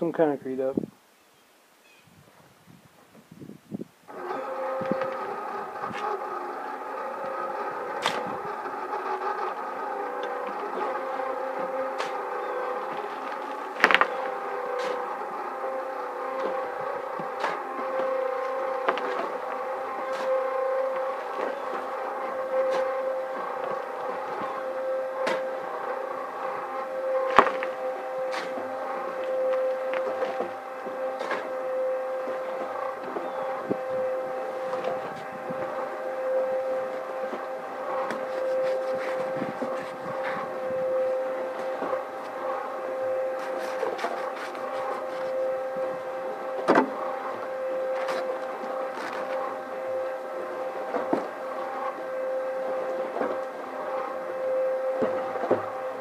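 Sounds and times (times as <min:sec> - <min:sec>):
cement mixer motor hum: 0:03.4 - 0:56.0
sharp knocks and scrapes: 0:07.9 - 0:15.3.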